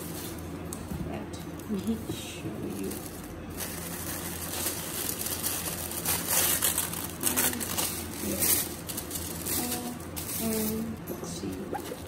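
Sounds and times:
tissue paper rustling: 0:02.6 - 0:12.0.

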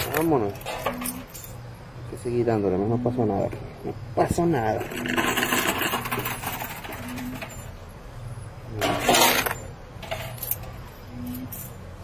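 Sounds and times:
arcade machine motor hum: 0:00.0 - 0:12.0
coins clinking and sliding: 0:04.8 - 0:07.7, 0:08.8 - 0:11.8.

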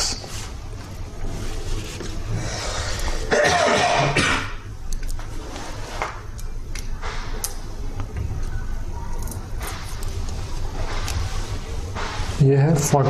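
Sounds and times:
low steady hum: 0:00.0 - 0:13.0
person coughing: 0:03.3 - 0:04.6.

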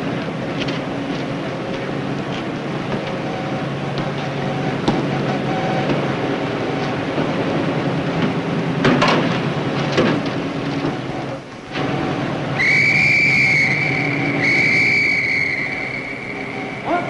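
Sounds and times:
steady mechanical drone: 0:00.0 - 0:17.0
high steady whistle: 0:03.2 - 0:07.1, 0:12.5 - 0:17.0.

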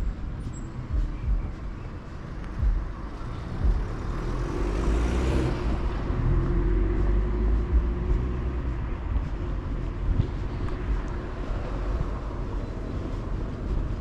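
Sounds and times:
low traffic rumble: 0:00.0 - 0:14.0
vehicle passing close by: 0:03.2 - 0:14.0.

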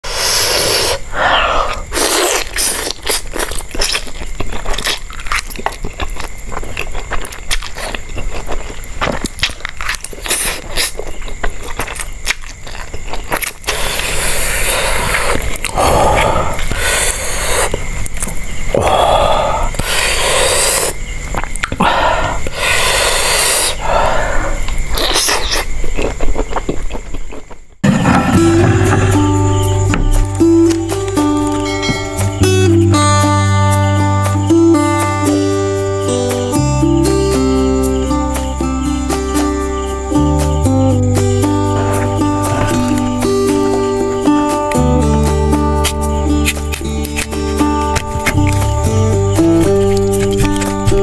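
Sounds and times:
airy breath bursts: 0:00.0 - 0:02.1, 0:13.9 - 0:17.7, 0:18.8 - 0:21.0, 0:21.8 - 0:24.6, 0:28.0 - 0:29.6
person eating mouth sounds: 0:00.1 - 0:31.7, 0:41.4 - 0:43.8, 0:45.8 - 0:51.0
biting and crunching food: 0:00.4 - 0:31.8, 0:40.6 - 0:51.0
small mouth clicks: 0:19.6 - 0:21.8, 0:23.2 - 0:26.6
scraping noises: 0:27.8 - 0:30.4, 0:41.7 - 0:43.2.

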